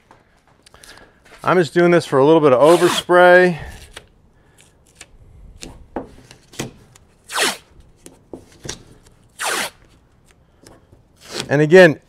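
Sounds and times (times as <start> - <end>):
tape ripping off roll: 2.6 - 3.1, 4.9 - 7.8, 8.6 - 10.0
tape rubbing on sheet metal: 2.6 - 3.1, 7.2 - 7.8, 9.3 - 10.0, 11.2 - 11.5.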